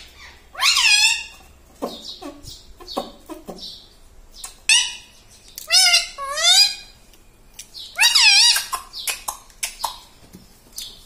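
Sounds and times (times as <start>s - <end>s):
parrot squawking: 0.0s - 3.8s, 4.4s - 7.0s, 7.9s - 10.1s
soft parrot chatter: 0.0s - 3.8s, 4.4s - 7.0s, 7.9s - 10.2s.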